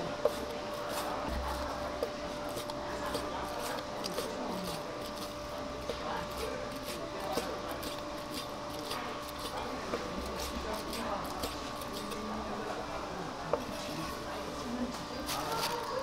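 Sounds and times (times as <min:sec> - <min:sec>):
steady hum: 0:00.0 - 0:16.0
knife slicing sausage: 0:00.2 - 0:12.3.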